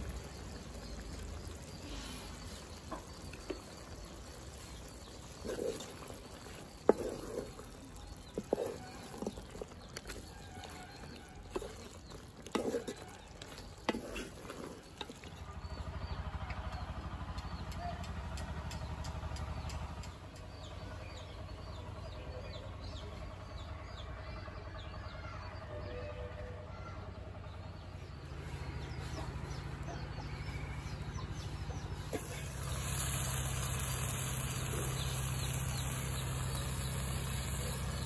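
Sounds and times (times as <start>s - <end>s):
spatula scraping metal pot: 3.4s - 15.5s.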